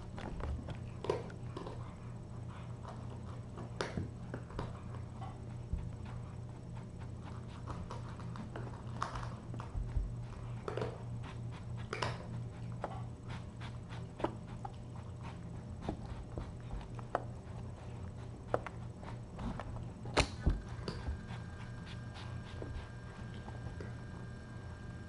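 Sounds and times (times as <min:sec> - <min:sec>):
low electrical hum: 0:00.0 - 0:25.0.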